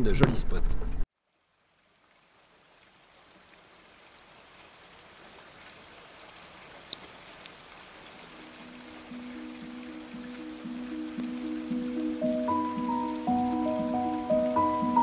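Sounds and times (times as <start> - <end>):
rain falling: 1.1 - 15.0
drips ticking: 8.1 - 15.0.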